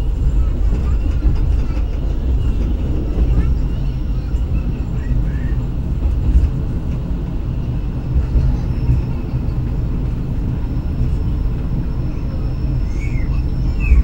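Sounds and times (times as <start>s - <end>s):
train rumbling on rails: 0.0s - 14.0s.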